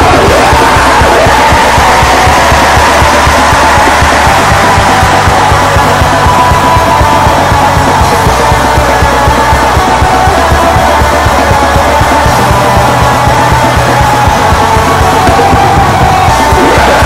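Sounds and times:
distorted guitars: 0.0 - 17.0
fast drums: 0.0 - 17.0.

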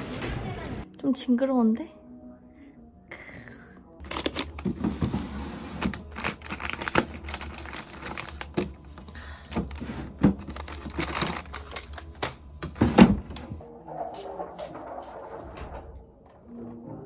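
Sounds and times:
plastic wrappers crinkling: 4.0 - 5.2, 5.8 - 12.7.

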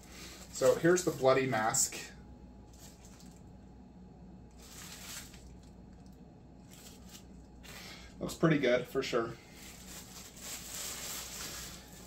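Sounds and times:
packaging rustling and crinkling: 0.0 - 1.6, 2.7 - 3.5, 4.5 - 5.8, 6.6 - 7.9, 9.5 - 12.0.

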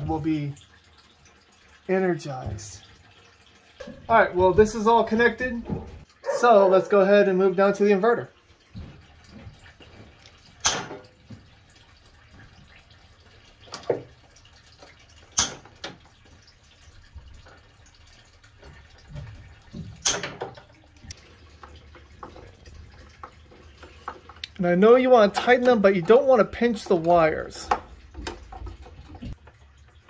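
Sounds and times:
wire strippers snapping: 15.3 - 15.7.

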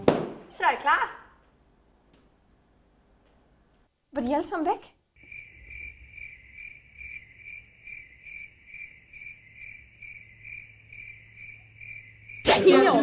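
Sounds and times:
crickets chirping: 5.2 - 13.0.

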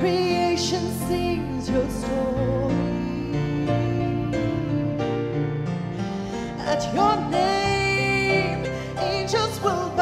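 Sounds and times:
woman singing with vibrato: 0.0 - 4.8, 6.6 - 10.0.

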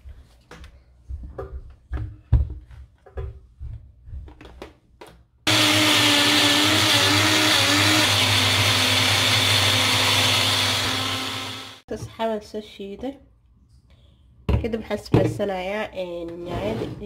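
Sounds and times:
blender motor whining: 5.5 - 11.8.

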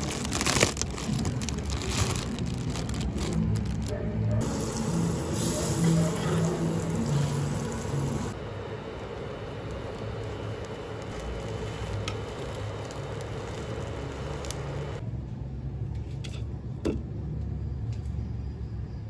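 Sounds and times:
bread sizzling in a pan: 4.4 - 15.0.

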